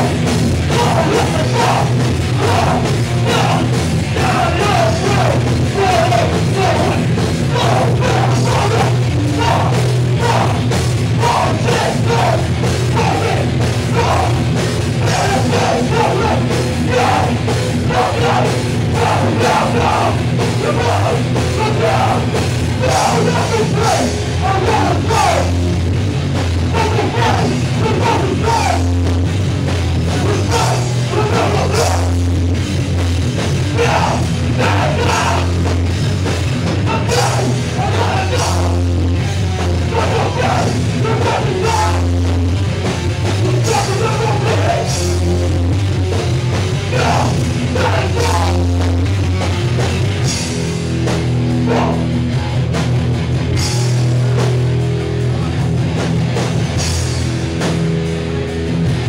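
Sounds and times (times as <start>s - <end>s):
punk band playing live: 0.0s - 59.0s.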